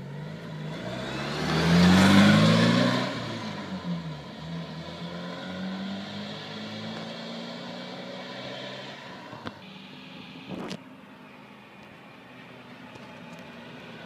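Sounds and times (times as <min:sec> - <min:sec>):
car driving past: 0:00.0 - 0:09.4.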